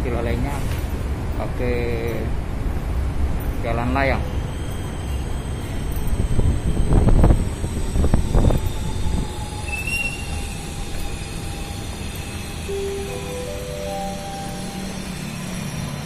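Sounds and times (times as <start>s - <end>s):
electric train rumbling overhead: 0.0s - 16.0s
thin high drawn-out tones: 9.7s - 16.0s.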